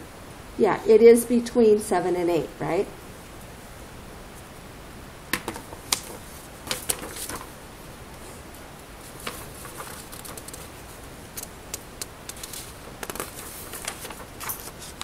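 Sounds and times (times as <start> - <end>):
paper rustling: 5.4 - 7.6, 9.0 - 15.0.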